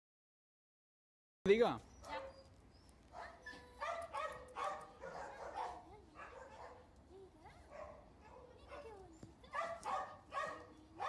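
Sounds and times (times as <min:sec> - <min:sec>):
dogs yapping: 0:01.9 - 0:06.8, 0:07.7 - 0:10.7.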